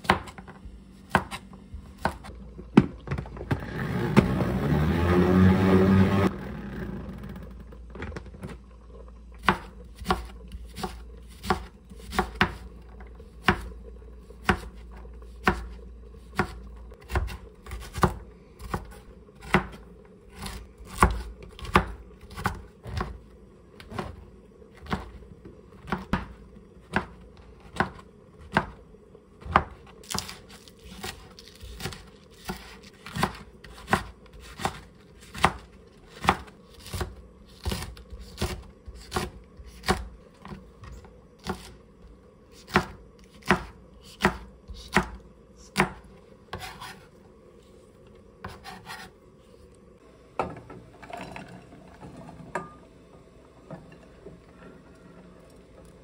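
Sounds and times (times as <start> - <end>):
knife chopping on plastic board: 1.1 - 2.3, 9.4 - 12.6, 13.4 - 13.7, 14.4 - 14.8, 15.4 - 19.8, 20.4 - 23.2, 25.8 - 28.8, 29.4 - 40.6, 41.4 - 41.7, 42.6 - 47.0.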